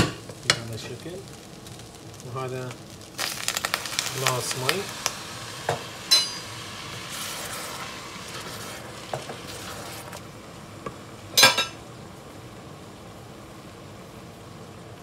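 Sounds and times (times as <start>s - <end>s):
sizzling in a hot pot: 0.0s - 15.0s
water poured into pot: 3.0s - 10.3s.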